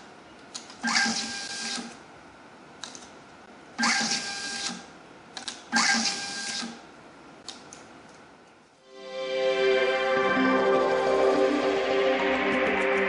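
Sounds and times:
label printer motor whirring: 0:00.8 - 0:01.9, 0:03.8 - 0:04.8, 0:05.7 - 0:06.8.

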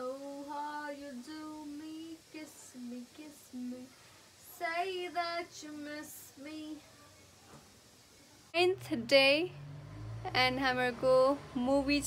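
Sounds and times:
girl singing: 0:00.0 - 0:07.1.

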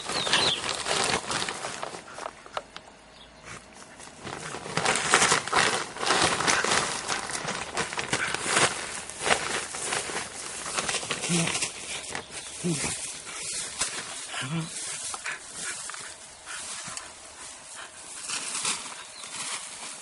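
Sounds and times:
straw rustling: 0:00.0 - 0:02.7, 0:03.5 - 0:20.0
plastic crinkling: 0:00.0 - 0:02.8, 0:03.8 - 0:20.0.

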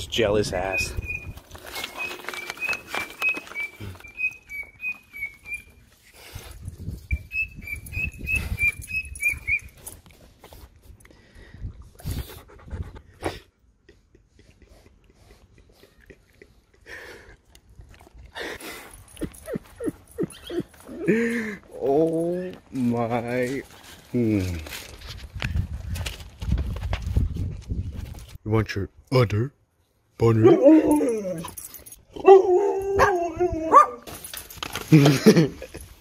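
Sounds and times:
dog whining: 0:19.4 - 0:21.1, 0:30.4 - 0:34.0.

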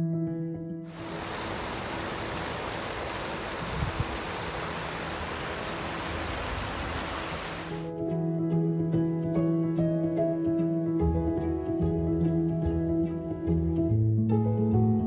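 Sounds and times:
heavy rain on water: 0:00.9 - 0:07.9.

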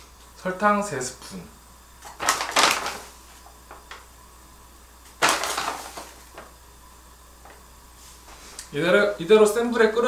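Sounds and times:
sugar bag rustle and crunch: 0:02.0 - 0:03.4, 0:05.1 - 0:06.4.

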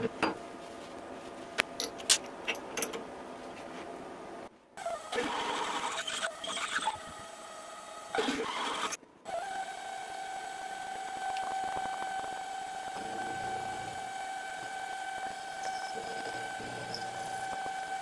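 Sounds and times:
milling spindle whine: 0:05.1 - 0:18.0
drill bit cutting brass: 0:10.0 - 0:18.0.

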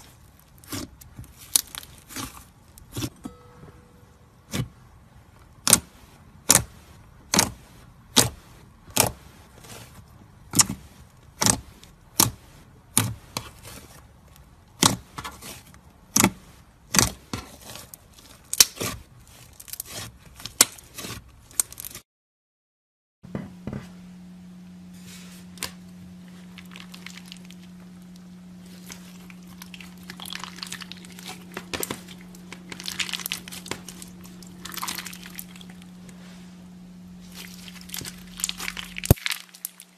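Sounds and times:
slime crackling and crinkling: 0:00.0 - 0:03.1, 0:05.6 - 0:22.0, 0:26.2 - 0:36.1, 0:37.0 - 0:39.9
low hum: 0:03.1 - 0:05.5, 0:23.9 - 0:39.9.

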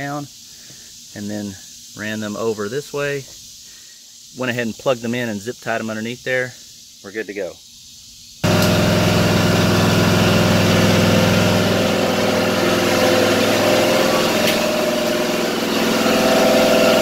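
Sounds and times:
mower engine running: 0:08.4 - 0:17.0.

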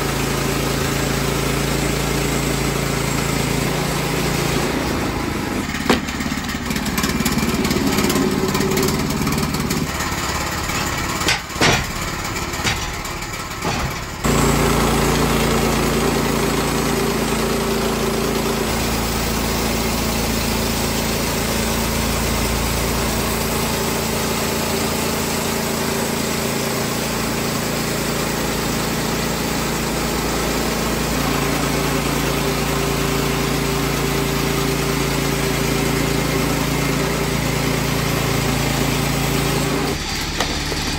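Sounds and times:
bandsaw mill engine running: 0:00.0 - 0:40.9
band blade sawing log: 0:00.6 - 0:40.9
sharp knocks: 0:05.8 - 0:06.3, 0:10.7 - 0:14.3.

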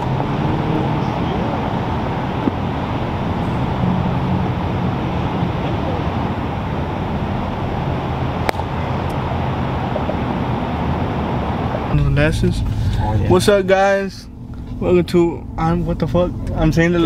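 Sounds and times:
distant traffic rumble: 0:00.0 - 0:17.0
sharp crack: 0:08.4 - 0:09.2.

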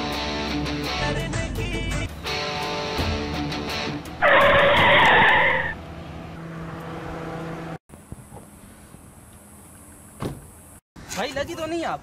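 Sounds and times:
car tyres screeching: 0:04.2 - 0:05.8.

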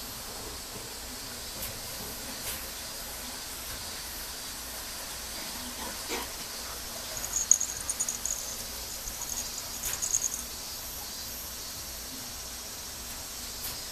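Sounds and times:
faint hiss: 0:00.0 - 0:13.9
toy squeaker squeaking: 0:07.2 - 0:10.4.

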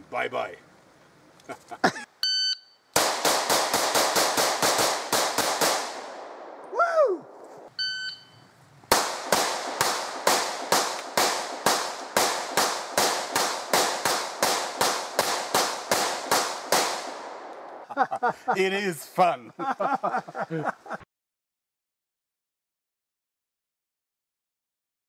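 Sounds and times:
brief ringing tone: 0:02.2 - 0:02.8, 0:07.8 - 0:08.5
pistol shots: 0:03.0 - 0:06.7, 0:08.9 - 0:17.8.

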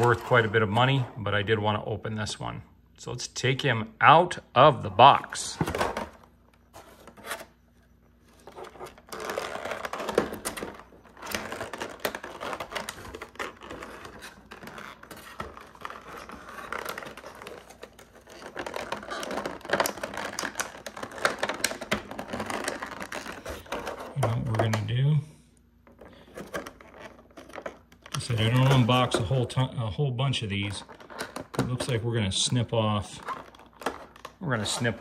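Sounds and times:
plastic blister tray crackling: 0:00.0 - 0:01.1, 0:08.2 - 0:25.2, 0:25.8 - 0:35.0.

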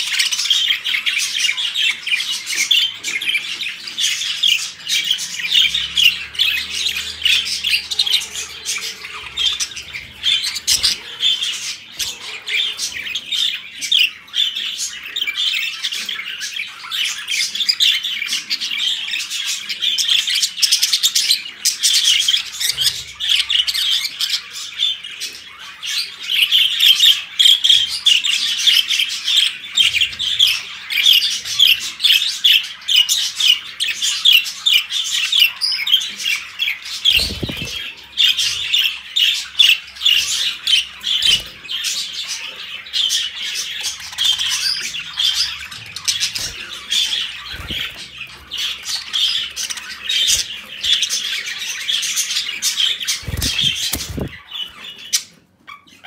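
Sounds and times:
budgerigars chattering: 0:00.0 - 0:56.0
wings fluttering: 0:37.1 - 0:38.0, 0:46.1 - 0:49.0, 0:53.0 - 0:54.8.

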